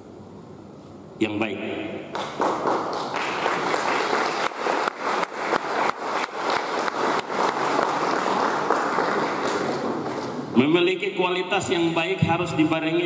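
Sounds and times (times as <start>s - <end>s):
audience applause: 2.2s - 10.3s.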